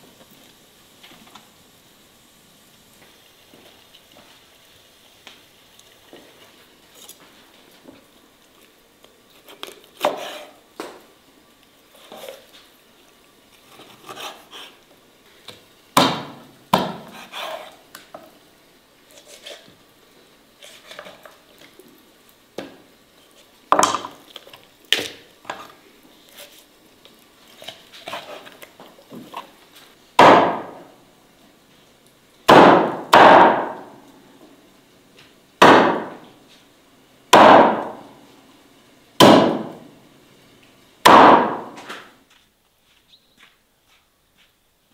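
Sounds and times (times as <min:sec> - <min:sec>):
cleaver chopping on wooden board: 0:16.0 - 0:17.6, 0:30.2 - 0:30.8, 0:32.5 - 0:33.8, 0:35.6 - 0:36.2, 0:37.4 - 0:38.0, 0:39.2 - 0:39.7, 0:41.1 - 0:41.8.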